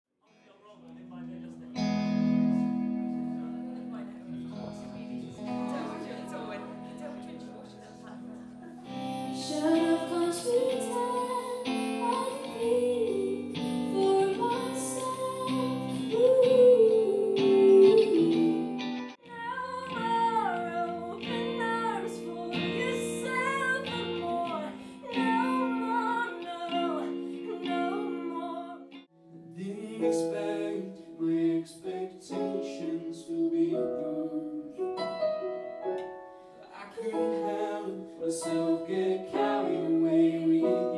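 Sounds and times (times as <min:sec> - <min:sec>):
electric guitar: 0:00.9 - 0:31.1
electric keyboard: 0:01.1 - 0:40.9
woman singing: 0:08.9 - 0:29.0, 0:36.7 - 0:40.9
man singing: 0:29.5 - 0:34.7, 0:36.7 - 0:40.9.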